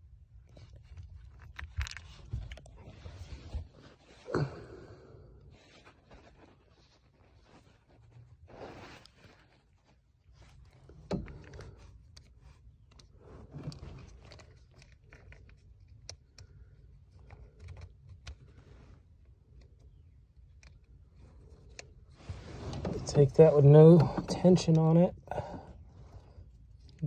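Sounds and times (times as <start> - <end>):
scraping and rustling: 5.6 - 19.6, 21.0 - 24.7.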